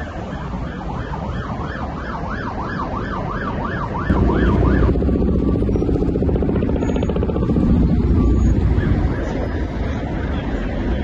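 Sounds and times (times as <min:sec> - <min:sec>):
low traffic rumble: 0:00.0 - 0:11.0
siren yelping: 0:00.1 - 0:10.2
loud low rumbling noise: 0:04.1 - 0:10.2.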